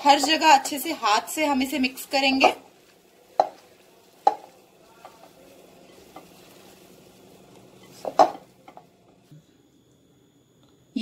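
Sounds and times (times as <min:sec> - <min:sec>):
faint steady hum: 0:00.0 - 0:11.0
hand squishing food in bowl: 0:02.6 - 0:08.5.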